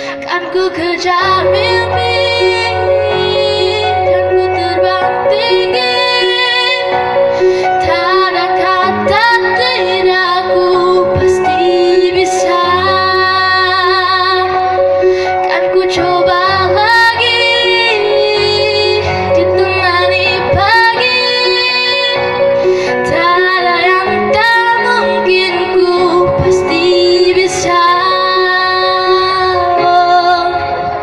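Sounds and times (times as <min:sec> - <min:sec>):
girl singing into a microphone: 0:00.0 - 0:31.0
musical accompaniment: 0:00.0 - 0:31.0.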